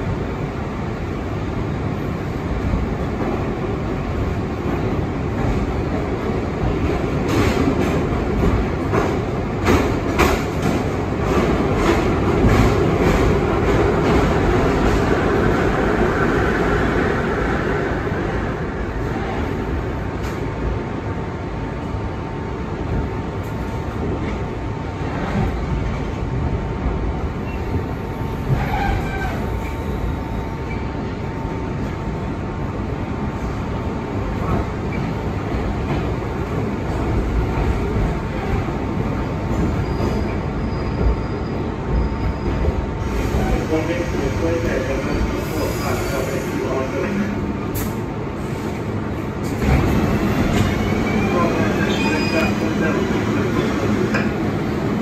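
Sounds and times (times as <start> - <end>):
subway wheels rumbling on rail: 0.0 - 55.0.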